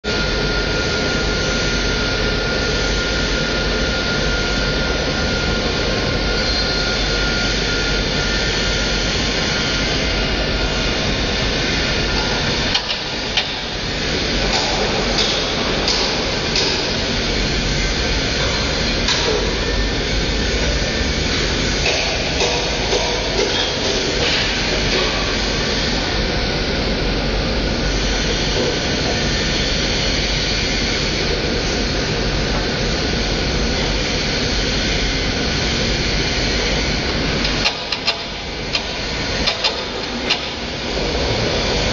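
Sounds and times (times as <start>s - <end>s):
faint high whine: 0.1s - 12.6s
heavy machinery running: 0.1s - 41.9s.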